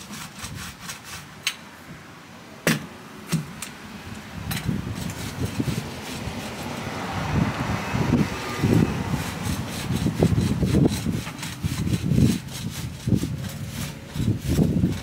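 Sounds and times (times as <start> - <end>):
paint roller rubbing on boards: 0.0 - 1.4, 4.8 - 7.0, 8.1 - 15.0
wind buffeting microphone: 4.0 - 15.0.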